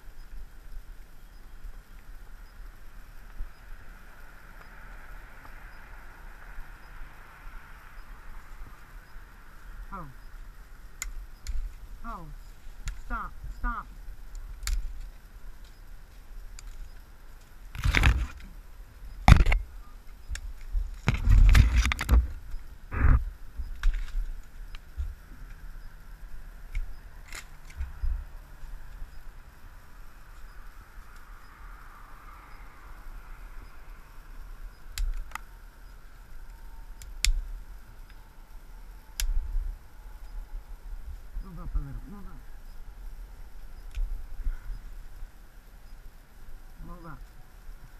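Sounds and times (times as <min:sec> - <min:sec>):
dry twigs snapping: 0:12.7 - 0:13.1, 0:14.2 - 0:18.5, 0:26.7 - 0:28.0, 0:34.9 - 0:35.5
branches scraping against camera: 0:14.0 - 0:18.6, 0:19.2 - 0:25.7, 0:26.7 - 0:29.1.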